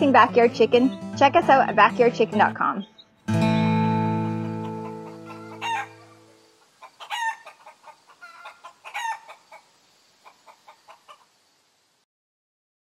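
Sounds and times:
acoustic guitar chord: 0:03.2 - 0:05.0
chickens clucking: 0:04.3 - 0:11.4.

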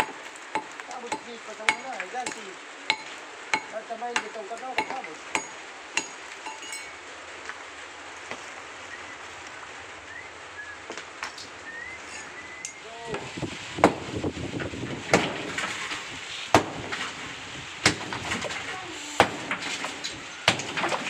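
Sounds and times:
rain hissing: 0:00.0 - 0:21.0
broken concrete crumbling: 0:13.1 - 0:21.0
hammer blows on concrete wall: 0:19.2 - 0:19.6.

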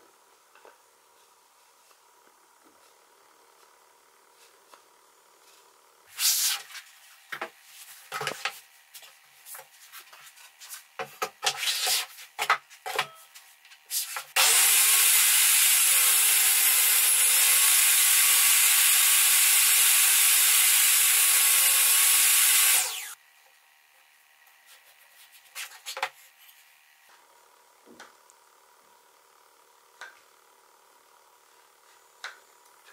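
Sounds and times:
electric power tool motor: 0:14.3 - 0:23.2.

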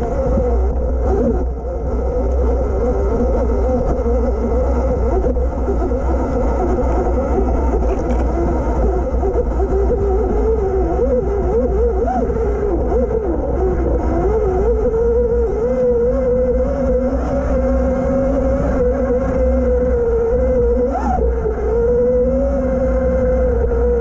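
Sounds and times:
wind and trail rumble: 0:00.0 - 0:24.0.

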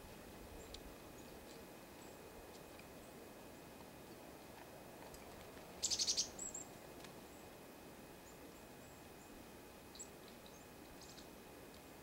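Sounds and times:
chickadees calling: 0:05.8 - 0:06.6.

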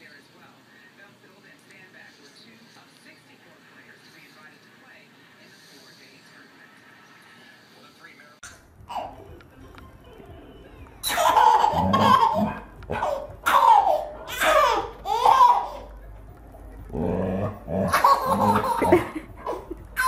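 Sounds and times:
baby laughing: 0:08.9 - 0:09.3, 0:11.0 - 0:16.0, 0:17.7 - 0:20.0.

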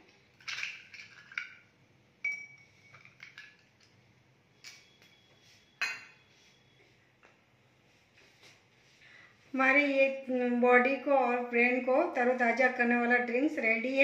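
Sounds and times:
ice cubes clinking in glass: 0:00.4 - 0:01.6.

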